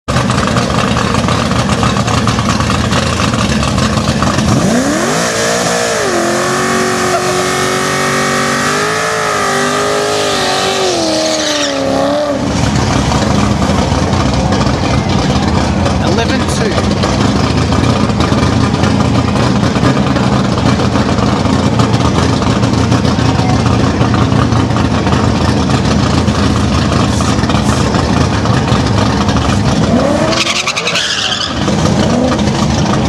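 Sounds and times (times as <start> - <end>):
car engine revving: 0.1 - 33.0
tyres squealing: 30.3 - 32.4.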